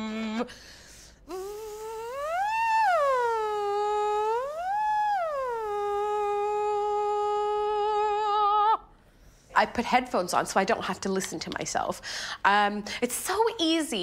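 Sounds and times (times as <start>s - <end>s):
woman voicing through a straw: 1.3s - 8.8s.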